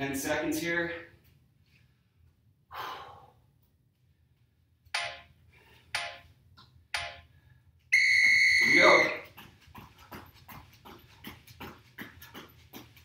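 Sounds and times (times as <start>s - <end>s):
short timer beeps: 8.0s - 9.2s.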